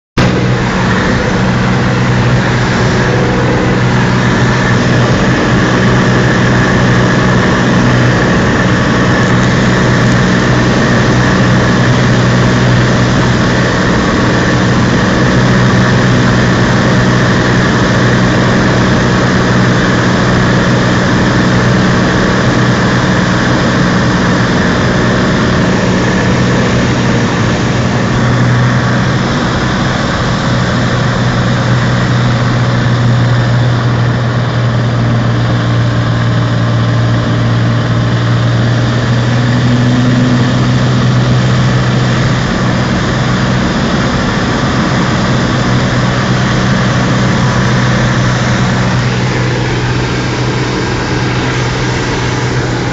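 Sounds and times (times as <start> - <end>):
airflow noise: 0.2 - 52.9
plane engine drone in cabin: 0.2 - 52.9.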